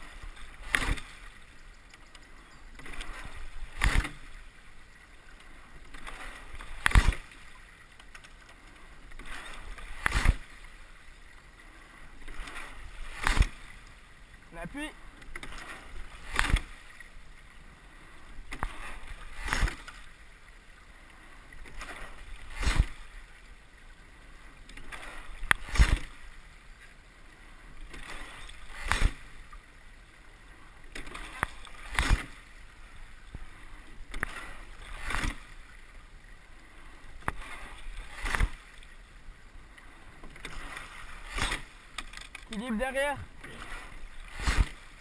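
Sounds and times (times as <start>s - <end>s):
water rushing: 0.0s - 45.0s
wind: 0.0s - 45.0s
boat knocking with each stroke: 0.1s - 10.8s, 12.1s - 17.3s, 18.2s - 20.2s, 30.8s - 32.6s, 39.6s - 45.0s.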